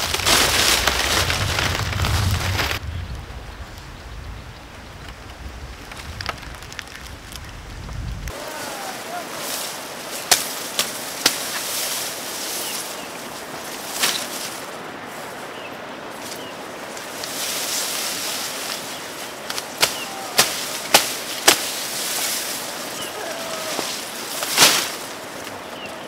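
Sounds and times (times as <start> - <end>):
leaves rustling: 0.0 - 26.0
grass stalks cracking when chopped: 10.1 - 11.9, 13.9 - 14.5, 18.3 - 25.6.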